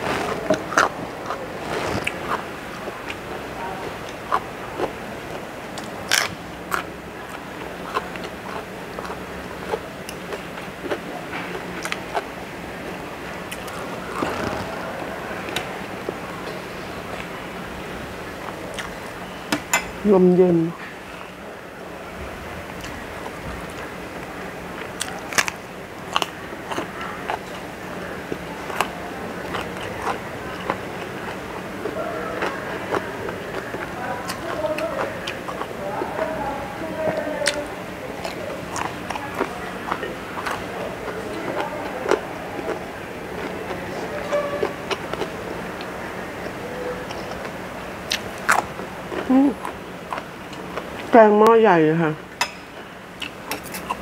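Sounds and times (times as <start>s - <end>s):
person crunching raw vegetable: 0.0s - 12.3s, 24.8s - 51.1s
chewing and biting food: 0.0s - 12.4s, 13.4s - 17.4s, 18.4s - 19.2s, 22.7s - 51.1s, 53.2s - 54.0s
faint steady hum: 0.0s - 54.0s.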